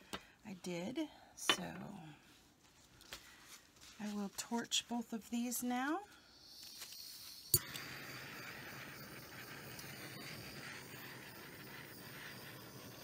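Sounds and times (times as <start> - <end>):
torch flame hissing: 6.4 - 13.0
torch igniter click: 7.5 - 11.4.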